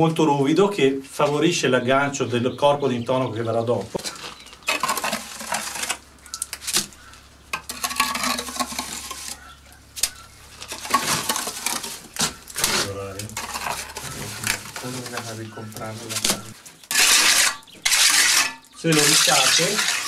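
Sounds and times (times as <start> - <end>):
trowel scraping mortar: 4.1 - 6.0, 6.6 - 20.0.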